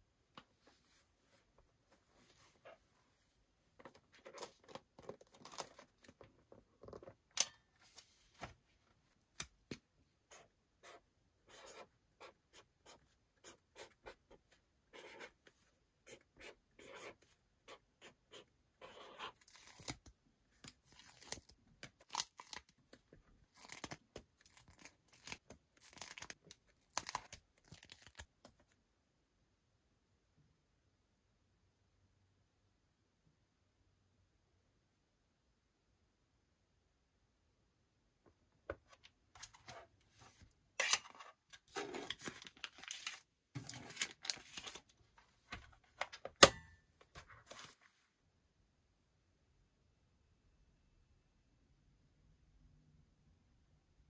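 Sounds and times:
marker scratching on paper: 10.3 - 19.4.

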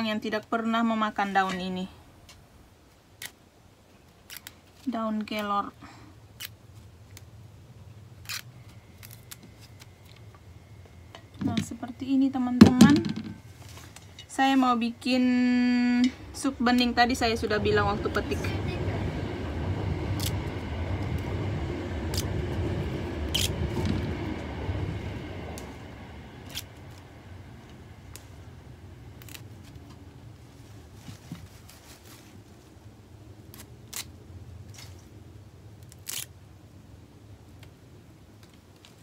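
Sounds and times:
leaves snapping off stems: 4.2 - 4.6, 29.2 - 29.9, 33.5 - 35.1, 35.8 - 36.3
low rumble: 7.6 - 31.0.

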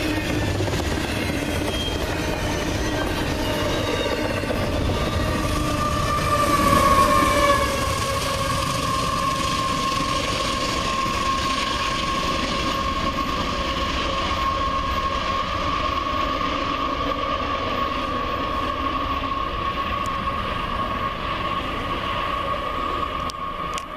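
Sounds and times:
high-pitched whine: 0.0 - 23.9
train wheels rolling on rails: 0.0 - 23.9.

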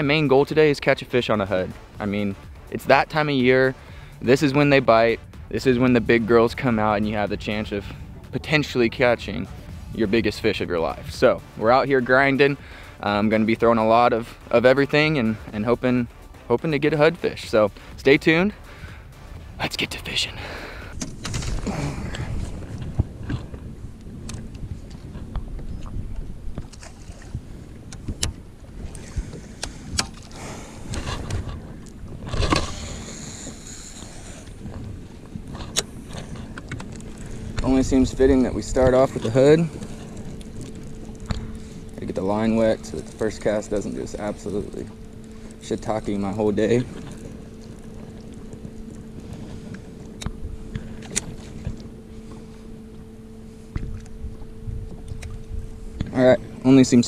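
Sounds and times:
electric trolling motor humming: 4.1 - 57.0
wind on microphone: 20.6 - 57.0
line whirring off reel: 27.9 - 52.6.

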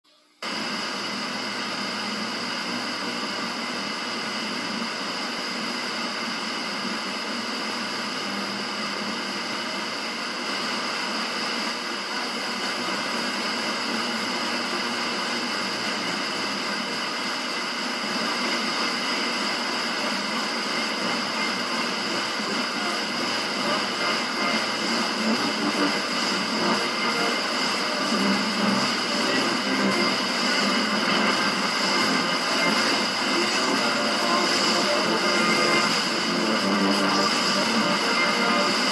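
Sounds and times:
radio static hiss: 8.2 - 38.9.

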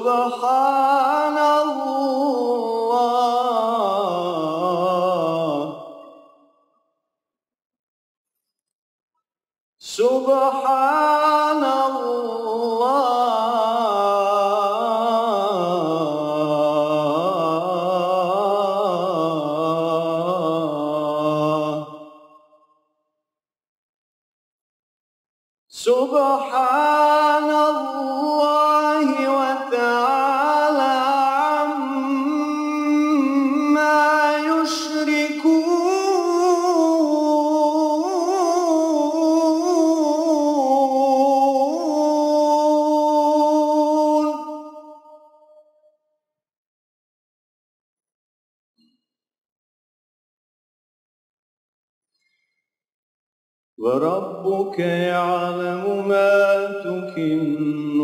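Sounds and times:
man chanting into microphone: 0.0 - 6.1, 9.9 - 22.1, 25.8 - 44.8, 53.8 - 58.0
man reciting melodically: 0.0 - 6.1, 9.8 - 22.1, 25.8 - 44.8, 53.8 - 58.0.

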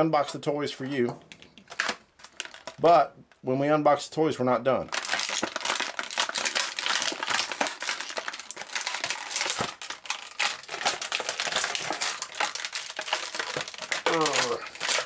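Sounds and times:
plastic packaging crinkling: 1.3 - 2.9, 4.9 - 15.0.

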